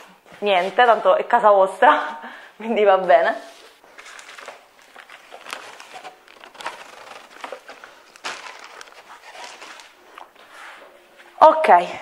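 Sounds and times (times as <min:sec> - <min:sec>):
plastic wrap crinkling: 0:03.4 - 0:10.6.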